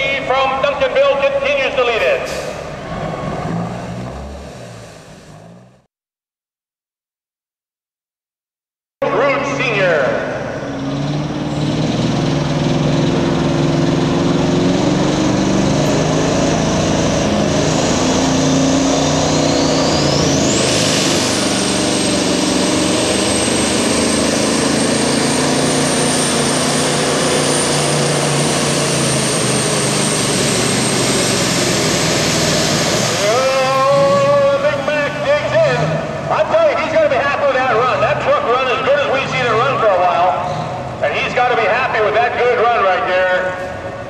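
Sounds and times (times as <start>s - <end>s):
diesel truck engine under load: 0.0s - 5.9s, 9.0s - 44.0s
turbocharger whine: 10.4s - 36.6s.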